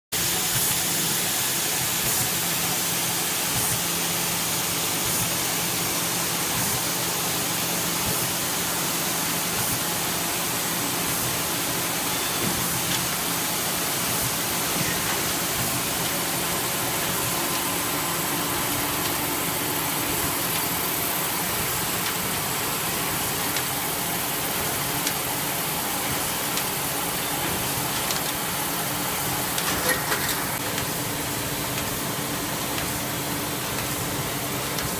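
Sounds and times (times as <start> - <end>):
binding machine humming: 8.1 - 34.9.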